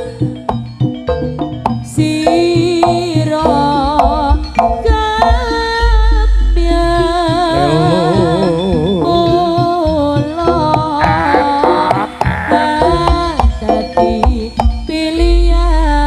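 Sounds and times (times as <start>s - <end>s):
wavering melody line: 7.6s - 15.6s
hand drum strokes: 10.8s - 14.7s.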